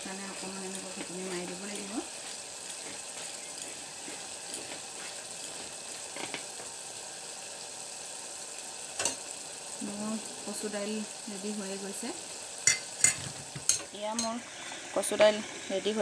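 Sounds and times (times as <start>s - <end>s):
ladle mashing and stirring: 0.0s - 6.6s
curry bubbling: 0.0s - 15.7s.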